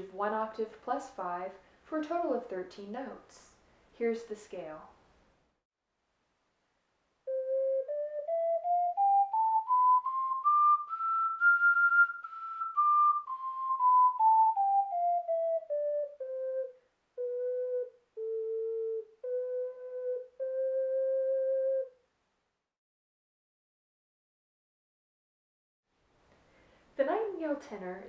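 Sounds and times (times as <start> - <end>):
ocarina playing a scale: 7.2 - 22.0.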